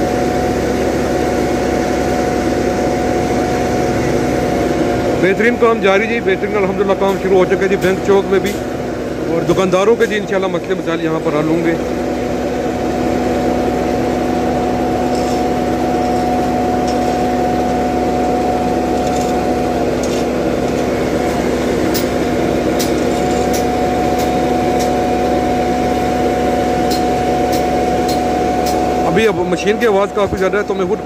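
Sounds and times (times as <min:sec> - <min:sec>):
machinery engine drone and whine: 0:00.0 - 0:31.0.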